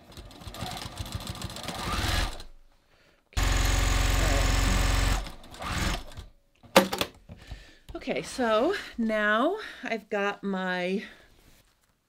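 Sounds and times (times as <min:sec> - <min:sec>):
sewing machine stitching: 0:00.0 - 0:02.5, 0:03.4 - 0:06.2.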